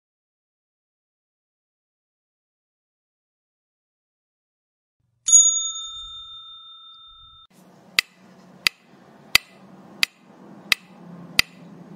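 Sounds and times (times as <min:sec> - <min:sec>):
bright electronic chime: 0:05.3 - 0:07.5
sharp ticks: 0:08.0 - 0:08.8, 0:09.4 - 0:11.6.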